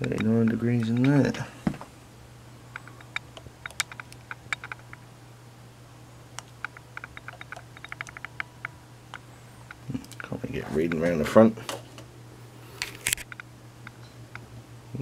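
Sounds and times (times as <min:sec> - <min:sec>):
faint low hum: 0:00.0 - 0:15.0
light rapid clicks: 0:02.8 - 0:05.0, 0:06.4 - 0:10.3.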